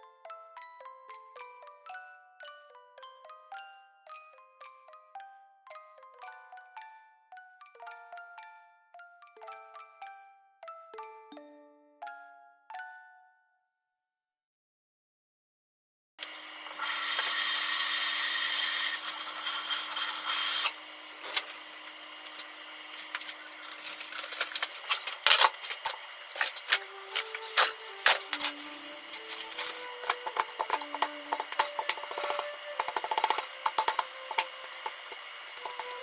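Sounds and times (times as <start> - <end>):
utensils clicking and scraping: 16.7 - 36.0
loud steady noise: 20.6 - 36.0
simple melody of single notes: 26.6 - 36.0.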